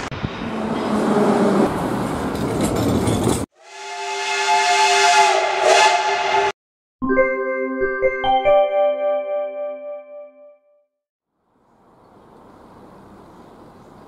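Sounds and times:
metro train rushing rumble: 0.2s - 6.6s
steam locomotive whistle: 3.6s - 6.6s
piano-like music jingle: 7.0s - 10.9s.

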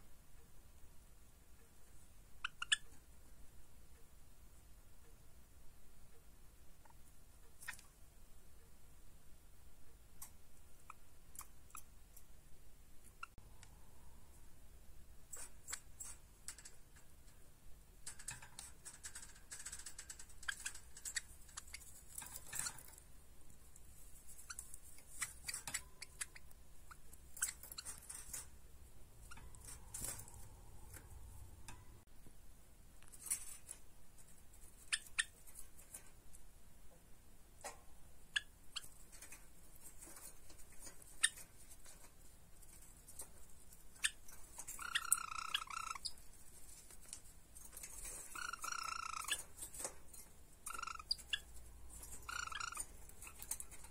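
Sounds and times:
birds scratching in a wire cage: 15.2s - 31.9s, 33.1s - 36.4s, 38.7s - 53.9s.

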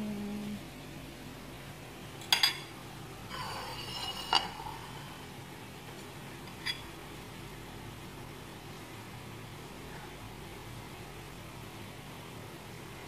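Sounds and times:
fork scraping on plate: 3.3s - 5.2s, 6.5s - 6.9s
fork clinking on plate: 6.5s - 6.9s.

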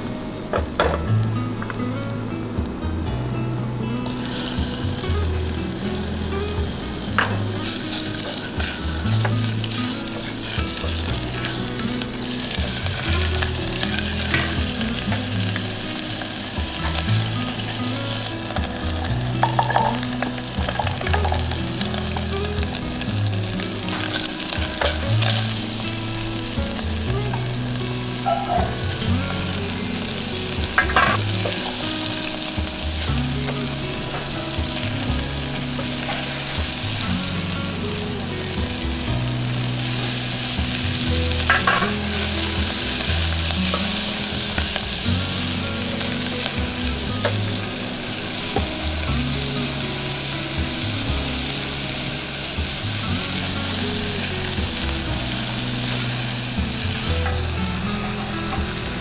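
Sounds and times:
chicken sizzling in hot oil: 0.0s - 59.0s
spatula scraping and tapping pan: 41.4s - 44.9s.

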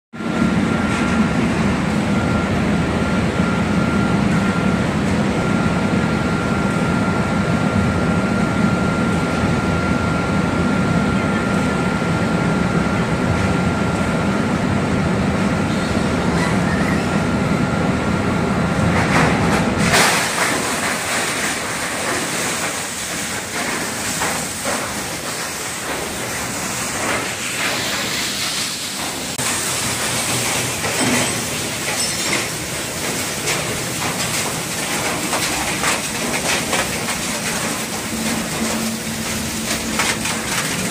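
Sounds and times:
shredder heavy drone: 0.2s - 40.9s
clattering rattle of metal pieces: 30.8s - 32.6s.

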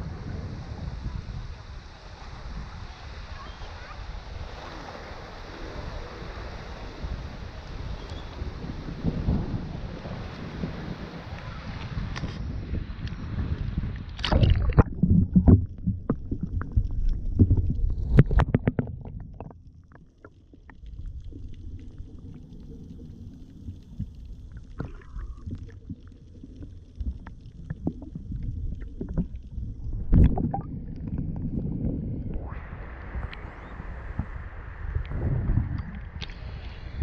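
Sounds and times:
muffled underwater rumble: 0.0s - 37.0s
water splashing against camera: 10.0s - 37.0s
faint underwater clicks: 11.3s - 12.4s, 13.0s - 13.2s, 13.9s - 36.7s.

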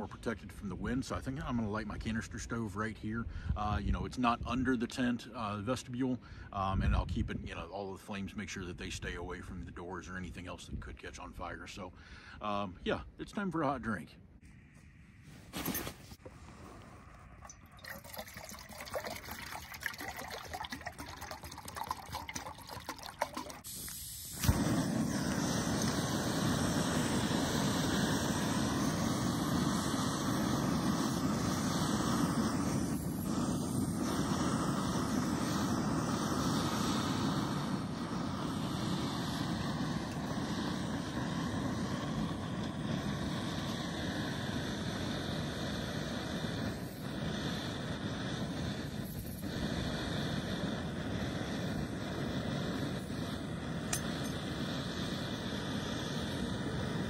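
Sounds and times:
handling and scuffing noises: 14.4s - 16.4s
gas stove burning hiss: 23.5s - 57.0s.

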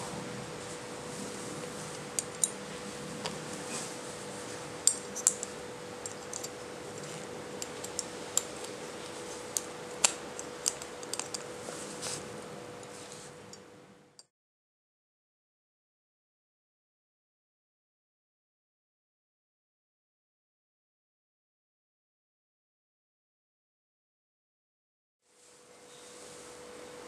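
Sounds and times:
faint steady hum: 0.0s - 14.3s, 25.3s - 27.0s
aluminium parts clicking and clinking: 1.9s - 2.6s, 4.8s - 11.5s.

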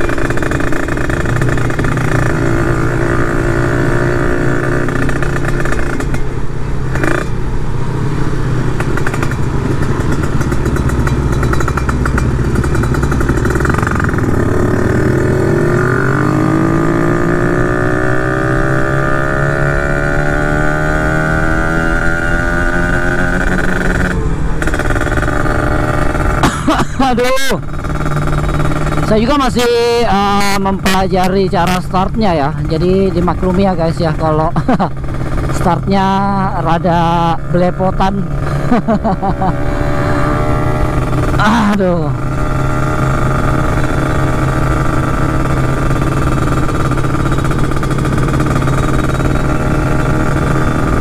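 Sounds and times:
motorcycle engine revving: 0.0s - 51.0s.

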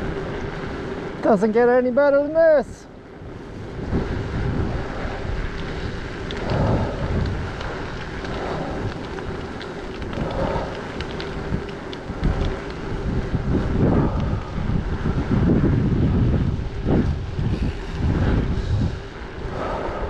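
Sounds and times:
bike tyres rolling on asphalt: 0.0s - 20.0s
wind buffeting microphone: 0.0s - 20.0s
faint ticks: 4.7s - 15.1s.

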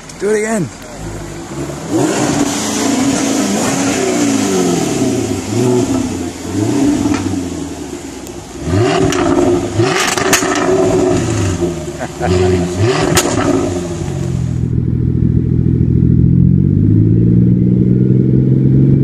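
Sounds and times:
exhaust pops and crackles: 0.0s - 4.1s, 5.5s - 7.4s, 8.2s - 16.7s
car engine revving: 0.0s - 19.0s.

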